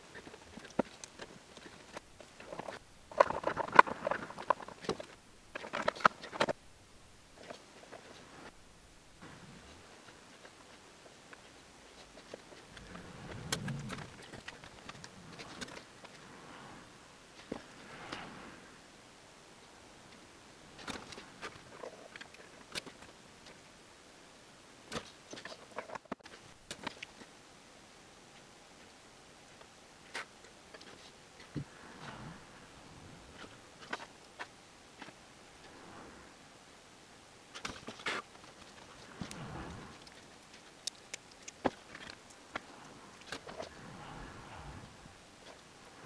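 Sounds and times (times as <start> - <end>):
small clicks and rattles: 0.0 - 6.6, 37.5 - 44.7.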